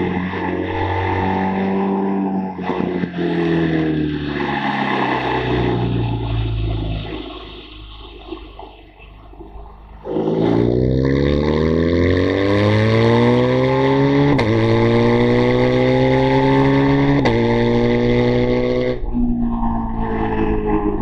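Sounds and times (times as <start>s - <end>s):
motorcycle engine accelerating: 9.9s - 21.0s
wind rush: 18.6s - 21.0s.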